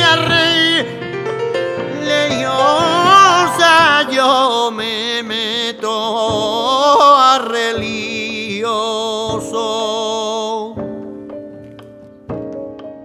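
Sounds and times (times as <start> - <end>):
man singing flamenco: 0.0 - 1.0, 1.9 - 11.0.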